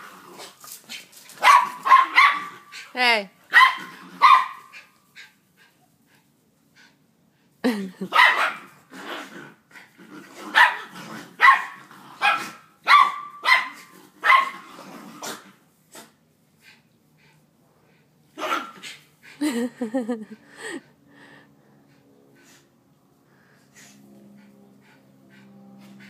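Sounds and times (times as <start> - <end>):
dogs barking: 1.4 - 2.7, 3.5 - 4.8, 8.1 - 8.7, 10.5 - 14.6
dog growling: 8.9 - 12.5, 13.8 - 16.1.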